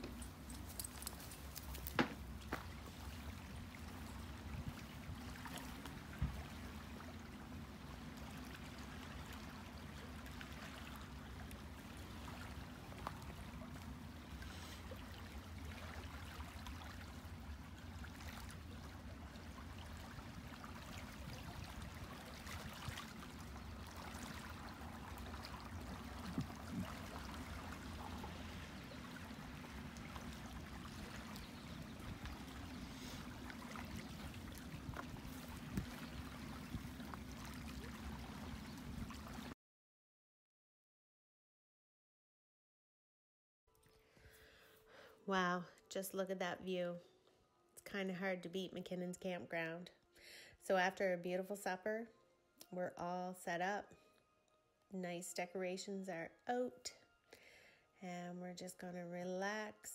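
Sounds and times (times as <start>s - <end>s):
small waves lapping: 0.0s - 39.6s.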